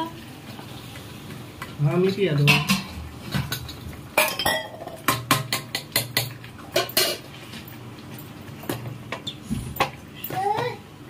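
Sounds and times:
utensils and dishes clinking: 0:02.0 - 0:10.8.

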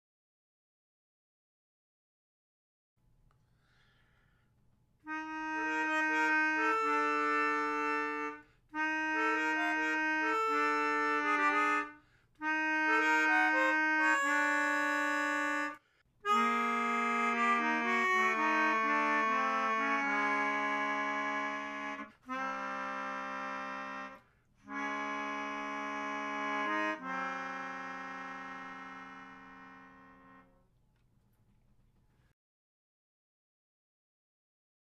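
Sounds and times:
melodica playing slow notes: 0:05.0 - 0:30.6.

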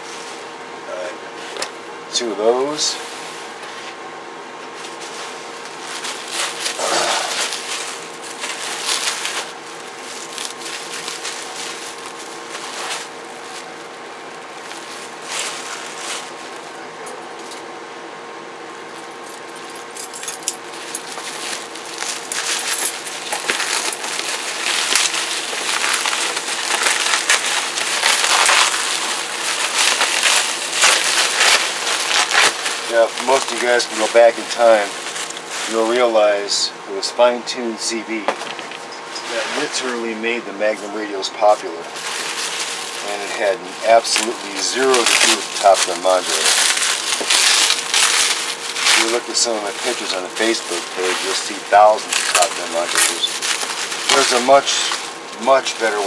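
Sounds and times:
bubble wrap crinkling: 0:04.8 - 0:16.8, 0:19.1 - 0:36.2, 0:40.9 - 0:56.0.

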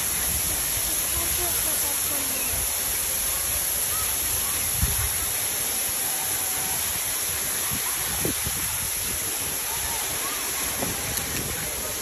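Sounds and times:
rushing flowing water: 0:00.0 - 0:12.0
wind rumbling on microphone: 0:04.2 - 0:12.0.

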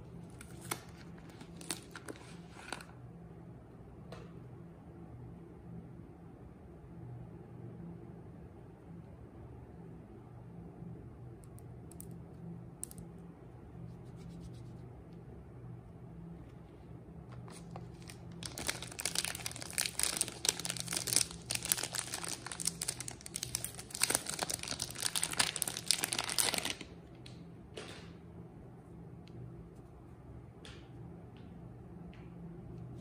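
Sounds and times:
faint low hum: 0:00.0 - 0:33.0
paper wrapper tearing and crinkling: 0:00.4 - 0:02.9, 0:17.4 - 0:26.9.

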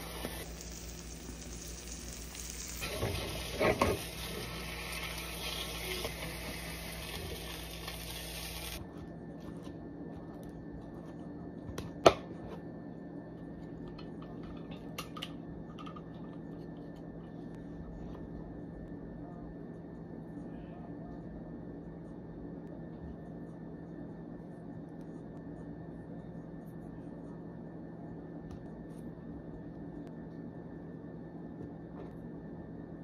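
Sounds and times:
eggs sizzling in a frying pan: 0:00.0 - 0:08.8
seasoning shaker ticks: 0:00.4 - 0:02.8.

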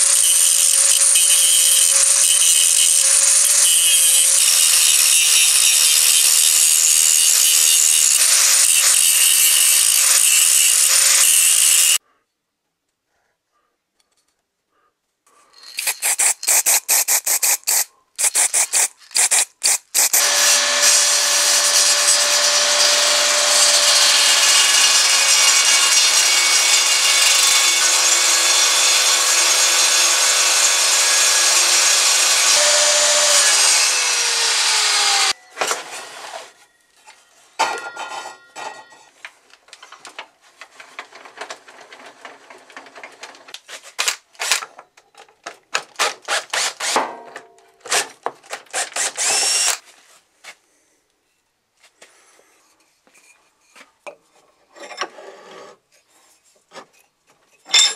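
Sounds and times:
angle grinder on metal: 0:00.0 - 0:12.0, 0:15.8 - 0:35.4, 0:48.8 - 0:49.8
table saw cutting wood: 0:00.0 - 0:12.0, 0:20.0 - 0:36.5.

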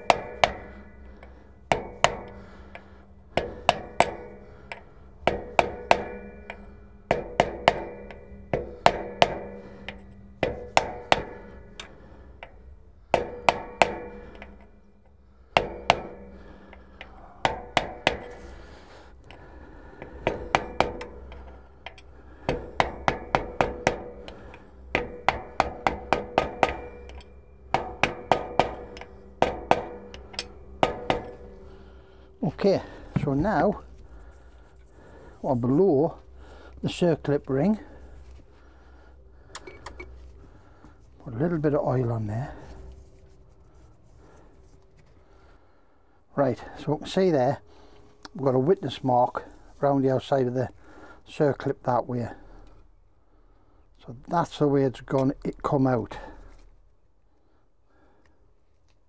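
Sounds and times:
hammer tapping on metal: 0:00.0 - 0:38.4, 0:39.4 - 0:43.1.

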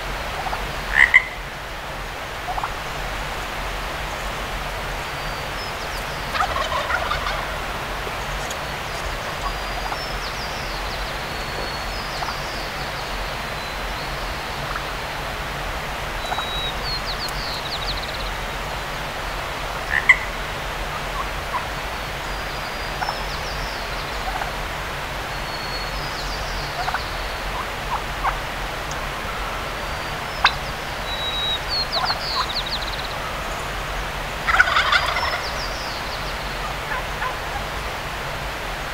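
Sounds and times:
turkey gobbling: 0:00.4 - 0:01.4, 0:02.5 - 0:02.8, 0:06.3 - 0:07.7, 0:08.3 - 0:10.0, 0:16.2 - 0:16.6, 0:19.9 - 0:20.3, 0:24.2 - 0:24.6, 0:26.8 - 0:29.0, 0:31.4 - 0:32.5, 0:34.4 - 0:35.6, 0:36.9 - 0:37.4.

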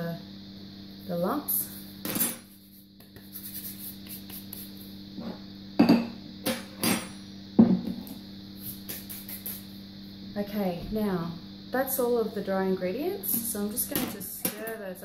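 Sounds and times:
steady low hum: 0:00.0 - 0:15.0
crock set down on table: 0:05.2 - 0:08.1.

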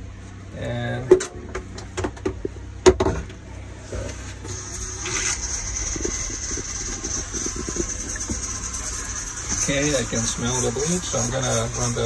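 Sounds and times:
water running from faucet: 0:04.5 - 0:12.0.

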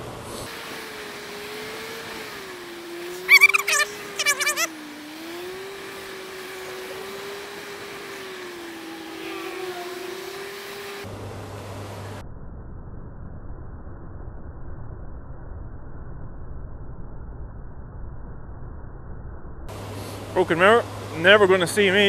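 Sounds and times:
hiss of air and wet road: 0:00.0 - 0:02.4, 0:19.7 - 0:21.0
warbling high-pitched sounds: 0:03.2 - 0:04.7.

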